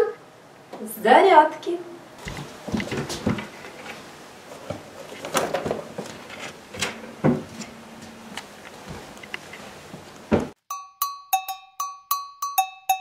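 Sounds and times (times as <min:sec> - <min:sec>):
rolled mat rustling: 0:02.2 - 0:10.6.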